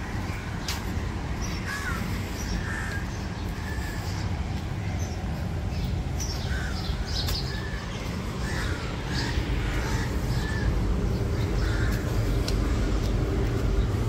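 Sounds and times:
city traffic rumble: 0.0s - 14.0s
crows cawing: 1.4s - 5.2s, 6.2s - 13.1s.

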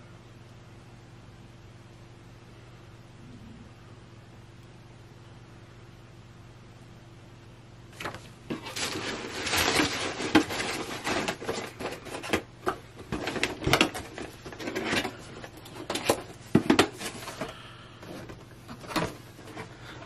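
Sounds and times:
cardboard rustling and scraping: 7.9s - 20.0s.

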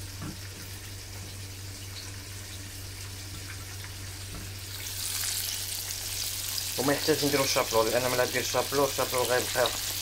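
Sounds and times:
chicken frying in hot oil: 0.0s - 10.0s.

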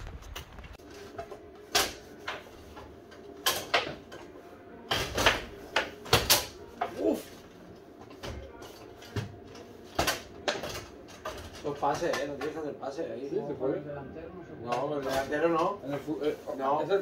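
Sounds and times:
foosball ball clacking: 3.3s - 4.3s.

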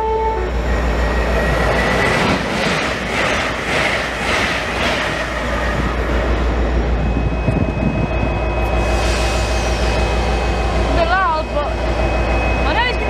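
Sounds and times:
diesel locomotive idling: 0.3s - 13.0s.

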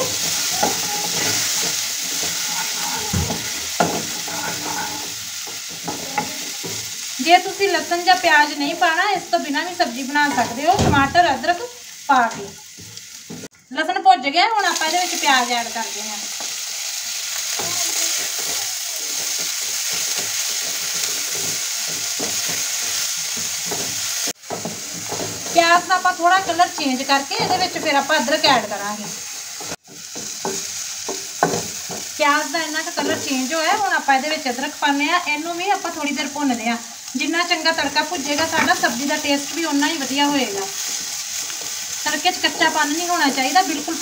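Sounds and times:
wooden spoon scraping a pan: 0.0s - 7.2s, 17.4s - 32.1s
garlic sizzling in oil: 0.0s - 44.0s.

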